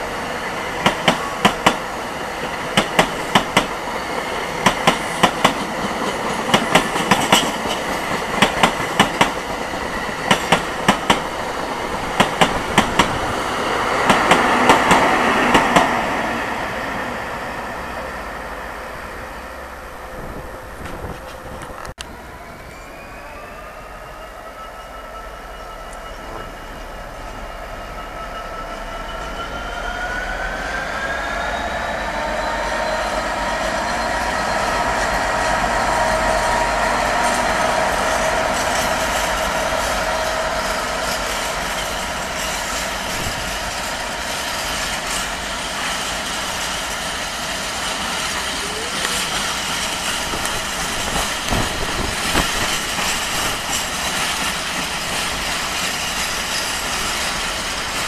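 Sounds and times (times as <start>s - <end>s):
diesel train engine accelerating: 25.9s - 58.0s
wheels clicking over rail joints: 47.9s - 58.0s.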